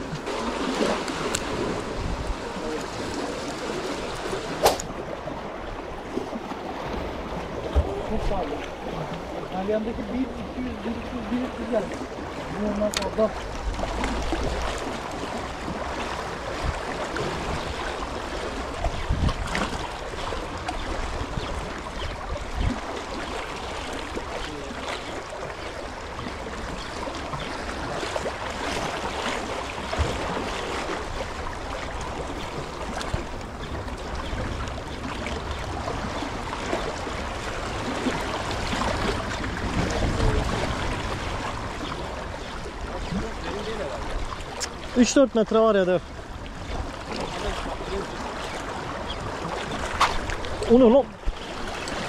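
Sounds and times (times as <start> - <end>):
water splashing against rocks: 0.0 - 52.0.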